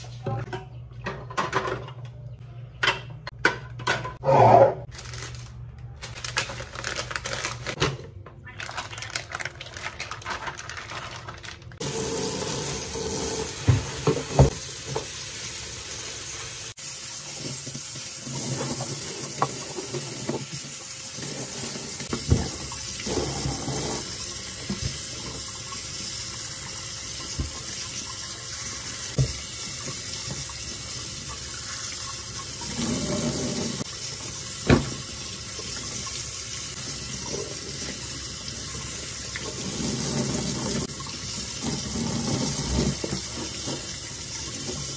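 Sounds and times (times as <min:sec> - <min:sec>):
tap water running into sink: 0:11.8 - 0:44.9.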